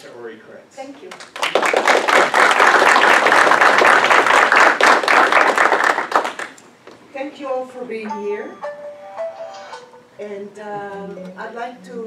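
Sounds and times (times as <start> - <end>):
audience applauding: 1.1 - 6.6.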